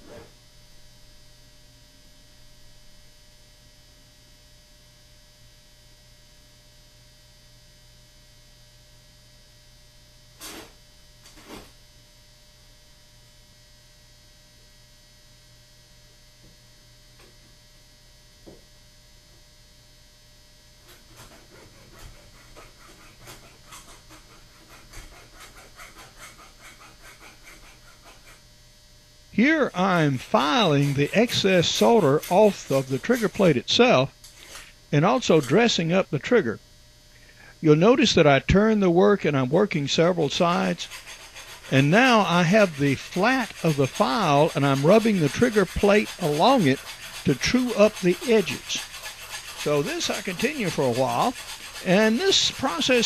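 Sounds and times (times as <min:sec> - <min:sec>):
electrical hum: 0:00.0 - 0:53.0
hand file rasping on metal: 0:20.8 - 0:28.5, 0:29.4 - 0:34.7, 0:40.0 - 0:53.0.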